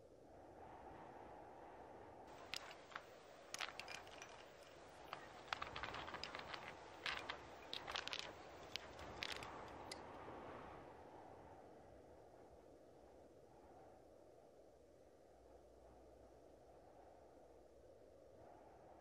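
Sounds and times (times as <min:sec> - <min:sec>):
low steady hiss: 0:00.0 - 0:19.0
climbing gear tapping on rock: 0:02.3 - 0:10.1.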